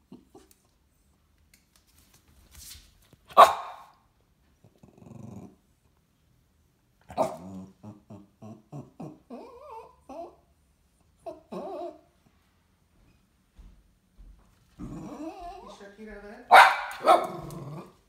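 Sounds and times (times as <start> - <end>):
dog barking: 3.3 - 3.9, 16.5 - 17.8
dog yipping: 3.3 - 3.9, 16.5 - 17.5
dog growling: 4.6 - 5.7, 7.0 - 10.4, 11.2 - 12.0, 14.8 - 15.7, 17.0 - 18.0.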